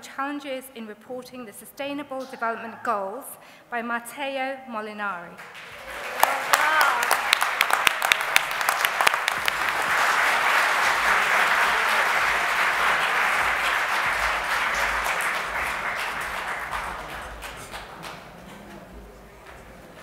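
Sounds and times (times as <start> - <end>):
audience applauding: 5.4 - 20.0.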